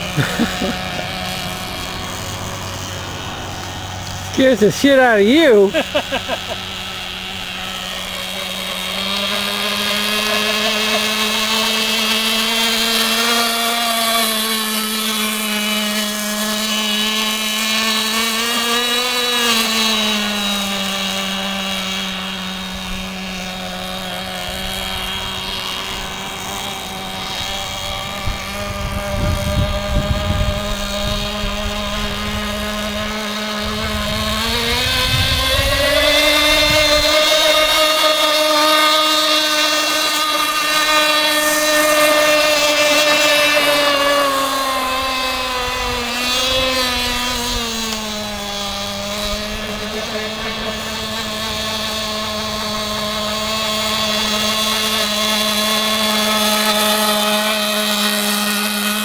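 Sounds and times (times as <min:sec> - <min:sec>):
model boat engine buzzing: 0:00.0 - 0:59.0
wind buffeting microphone: 0:26.9 - 0:38.1.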